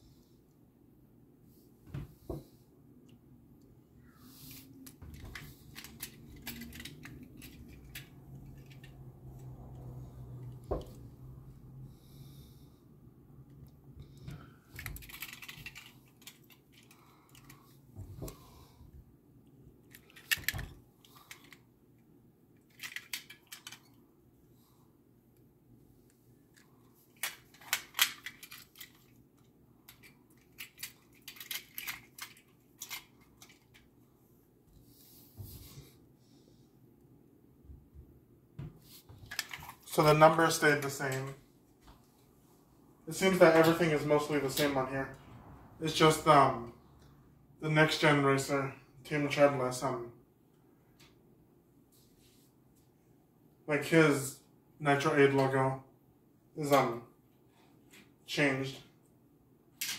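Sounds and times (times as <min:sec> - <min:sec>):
metal toy cars clinking: 0:05.2 - 0:08.9, 0:14.8 - 0:17.5, 0:22.7 - 0:24.0, 0:27.2 - 0:29.1, 0:29.9 - 0:33.8.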